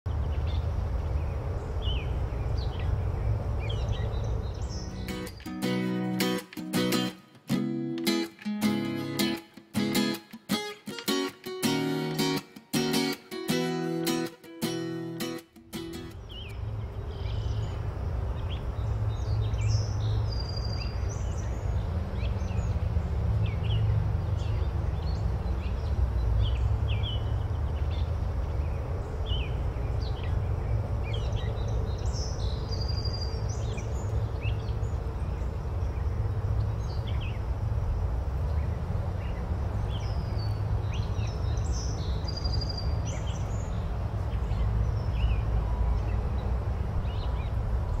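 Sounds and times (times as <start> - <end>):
small birds chirping: 0.1 - 37.6, 38.4 - 48.0.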